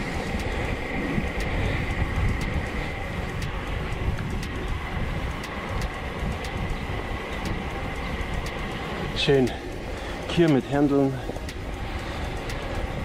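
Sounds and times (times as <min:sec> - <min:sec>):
faint regular ticks: 0:00.0 - 0:13.0
thin high whine: 0:00.0 - 0:13.0
wind noise: 0:00.0 - 0:13.0.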